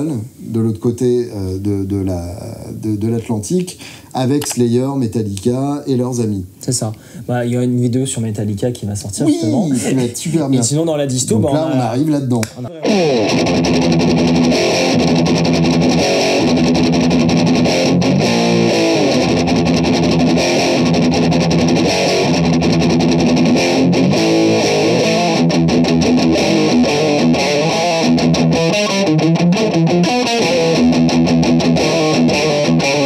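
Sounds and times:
distorted electric guitar riff: 12.7 - 33.0.

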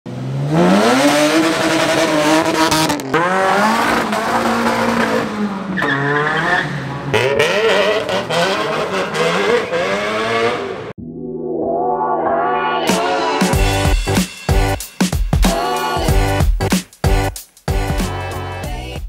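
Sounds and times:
car engines revving: 0.1 - 11.0.

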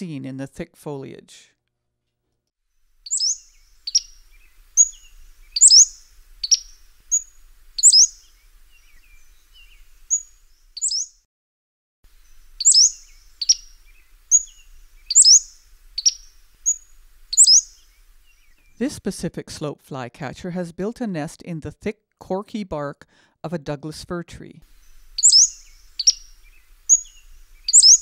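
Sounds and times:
flycatcher calling and singing: 3.0 - 11.2, 12.1 - 18.8, 24.7 - 28.0.

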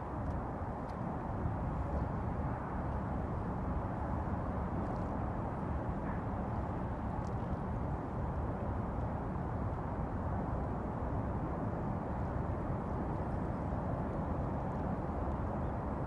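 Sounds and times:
harbour ambience rumble and hiss: 0.0 - 16.0.

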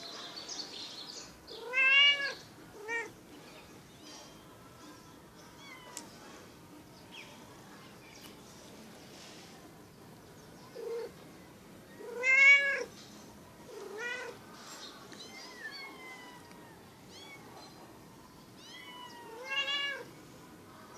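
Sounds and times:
cat meowing: 1.6 - 3.1, 12.0 - 12.9, 13.7 - 14.4, 18.6 - 20.1.

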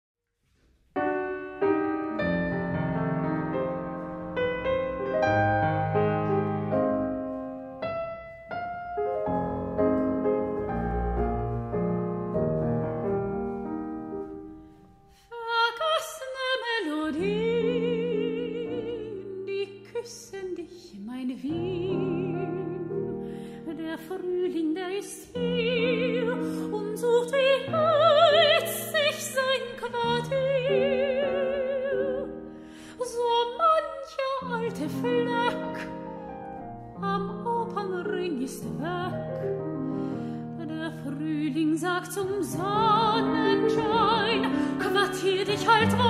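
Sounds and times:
grand piano playing chords: 1.0 - 15.1, 34.4 - 46.0
soprano singing with vibrato: 15.3 - 36.0, 37.0 - 39.4, 40.6 - 46.0.

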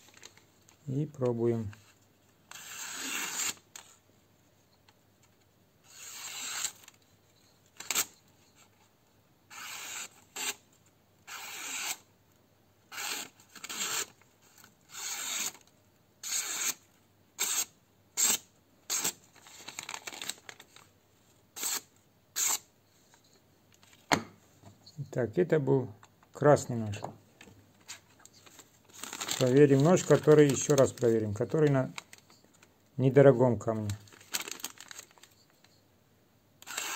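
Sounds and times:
knife slicing paper: 2.5 - 3.6, 5.8 - 6.9, 21.6 - 22.7, 36.6 - 36.9.

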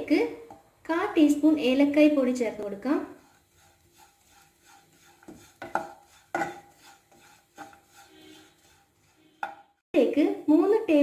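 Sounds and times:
wooden spatula scraping a pan: 2.1 - 9.8.

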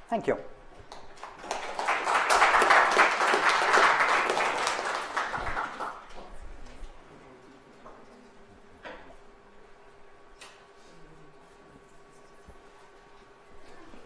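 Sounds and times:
audience applauding: 0.9 - 6.3.

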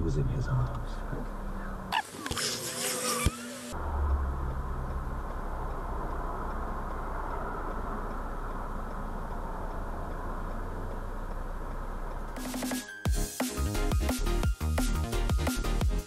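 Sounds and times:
muffled road traffic rumble: 0.0 - 12.7.

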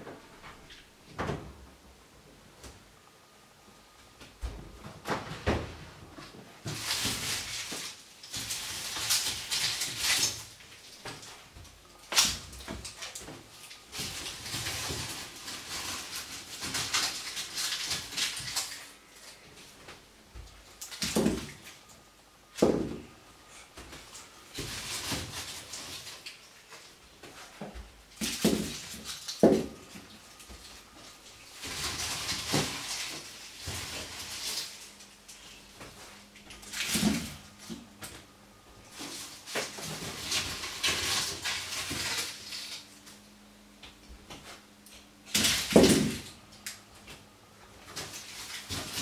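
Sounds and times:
rustling: 4.0 - 21.9, 22.6 - 43.3.

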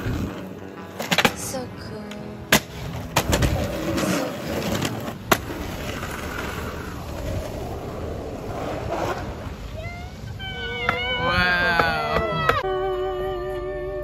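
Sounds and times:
skateboard wheels rolling on pavement: 0.0 - 12.7
skateboard clacks: 2.1 - 7.9, 10.6 - 12.6.

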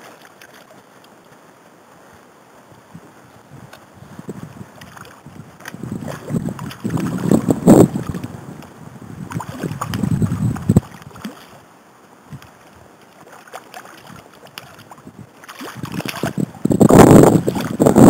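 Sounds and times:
river water sloshing: 0.0 - 1.9, 3.2 - 18.0
fish thrashing and splashing: 4.8 - 8.3, 9.3 - 11.6, 13.1 - 17.9.

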